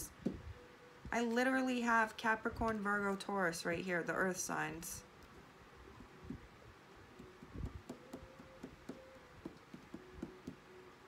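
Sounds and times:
cards clicking and tapping: 7.2s - 10.6s.

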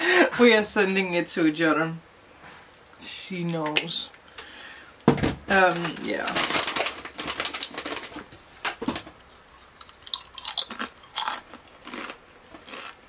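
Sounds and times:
person chewing crunchy food: 9.2s - 13.0s.

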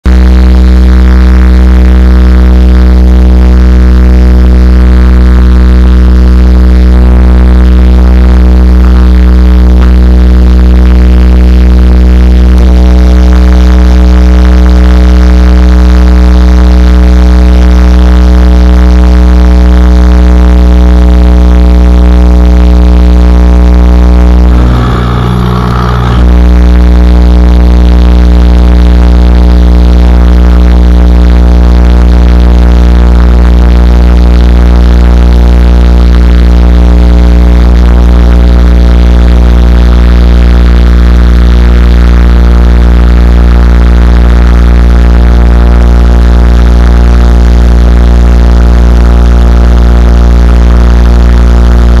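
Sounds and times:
air compressor buzzing hum: 24.3s - 26.6s.

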